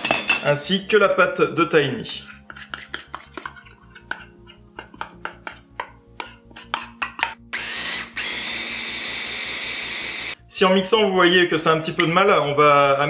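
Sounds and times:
metal spoon scraping and tapping: 0:02.0 - 0:07.5
electric mini chopper blending: 0:07.5 - 0:10.4.

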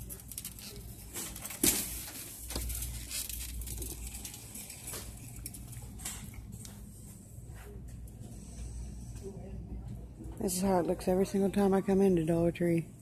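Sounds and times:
plastic shopping cart rattling: 0:00.0 - 0:05.2
low electrical hum: 0:00.0 - 0:13.0.

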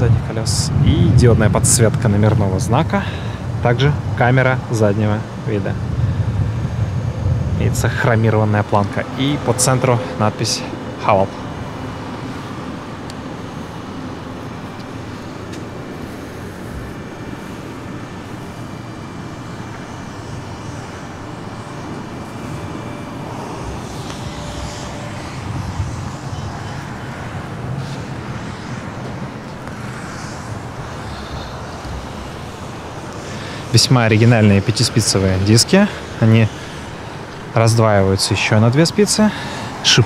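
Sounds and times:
even hiss: 0:00.0 - 0:40.0
vehicle rumble: 0:00.0 - 0:40.0.

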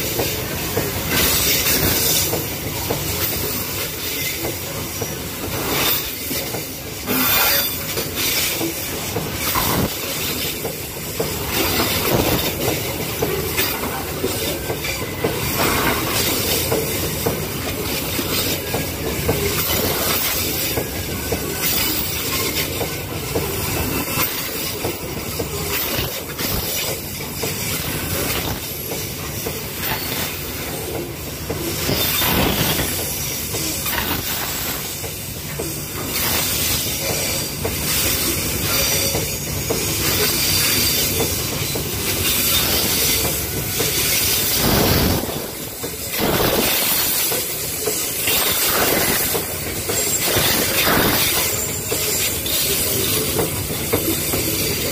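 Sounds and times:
train wheels on rails: 0:00.0 - 0:54.9
wheel squeal: 0:47.1 - 0:54.8.

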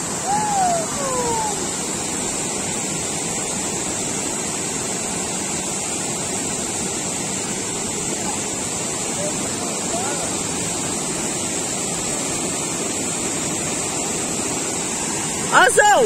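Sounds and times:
waterfall and river rushing: 0:00.0 - 0:16.0.

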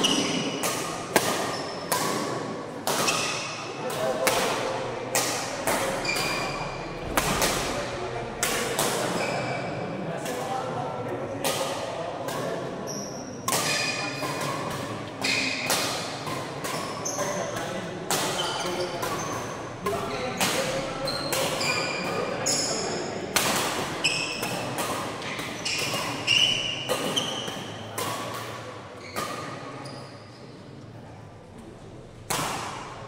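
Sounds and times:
sneakers squeaking: 0:00.0 - 0:03.6, 0:05.7 - 0:07.8, 0:08.6 - 0:09.8, 0:12.8 - 0:30.6
racket striking shuttlecock: 0:00.0 - 0:09.2, 0:13.5 - 0:22.4, 0:23.3 - 0:29.6, 0:32.3 - 0:33.0.

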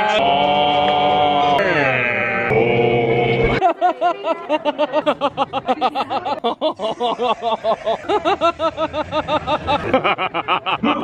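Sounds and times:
man giggling: 0:03.7 - 0:11.0.

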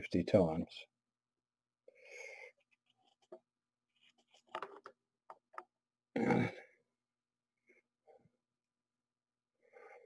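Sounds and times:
faint clicks and rubs: 0:02.6 - 0:05.7.

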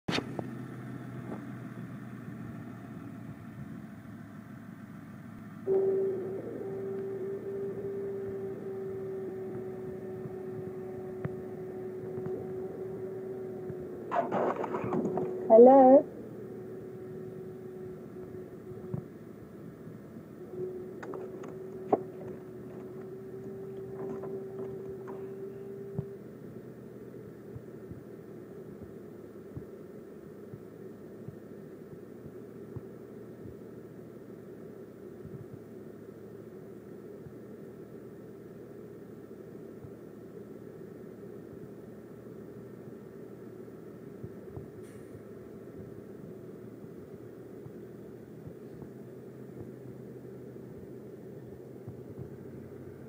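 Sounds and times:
bus engine idling: 0:00.0 - 0:53.0
high-pitched tone: 0:05.6 - 0:26.0.

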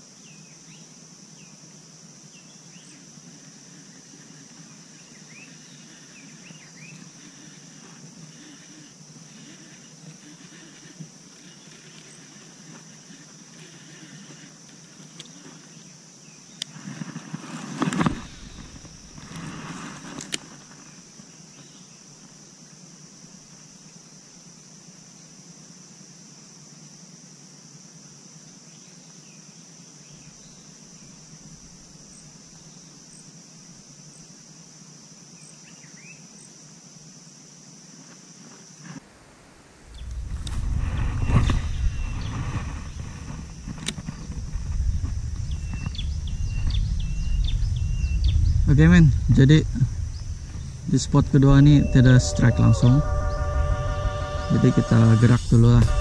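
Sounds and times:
high-pitched insect drone: 0:00.0 - 0:17.2, 0:39.6 - 0:56.0
soft rustle: 0:16.6 - 0:21.7, 0:38.0 - 0:47.8.

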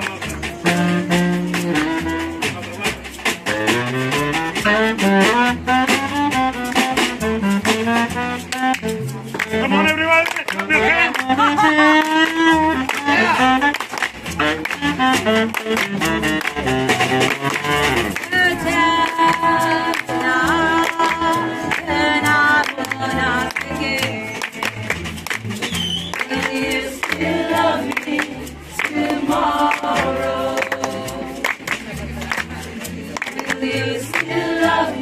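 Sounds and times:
hands clapping in time: 0:00.0 - 0:03.8, 0:06.6 - 0:35.0
plucked double bass: 0:00.0 - 0:35.0
women singing together: 0:18.2 - 0:24.9, 0:26.2 - 0:35.0.

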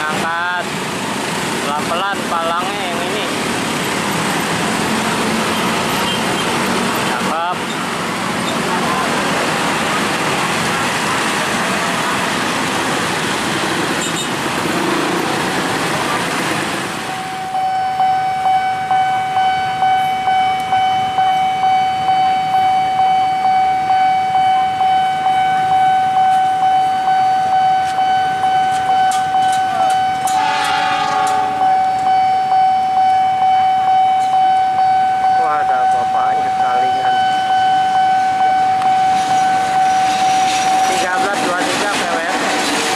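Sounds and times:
road traffic noise: 0:00.0 - 0:42.9
level crossing warning bell: 0:16.3 - 0:42.9
diesel locomotive horn: 0:30.1 - 0:32.0.

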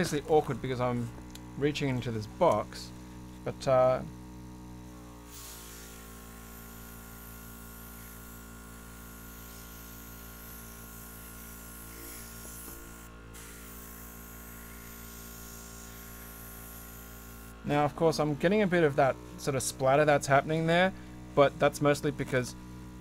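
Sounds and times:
compressor buzzing hum: 0:00.0 - 0:23.0
airbrush spraying air hiss: 0:05.3 - 0:17.6.

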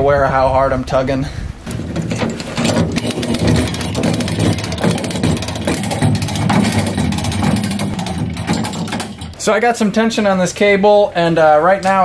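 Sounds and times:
winch pawl clicking: 0:01.7 - 0:10.4.

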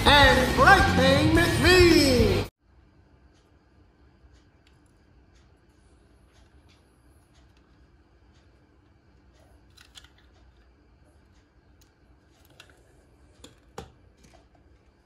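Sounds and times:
plastic toy car clicks: 0:09.7 - 0:10.3.

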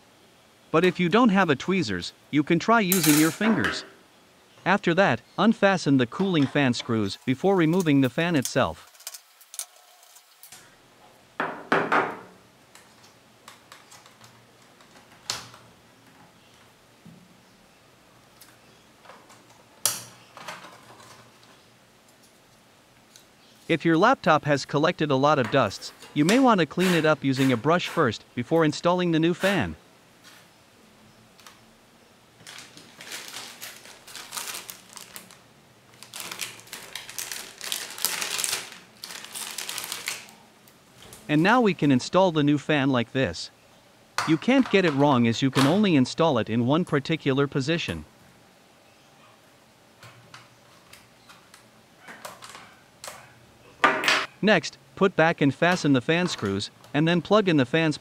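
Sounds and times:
plastic bag crinkling: 0:32.4 - 0:40.4.

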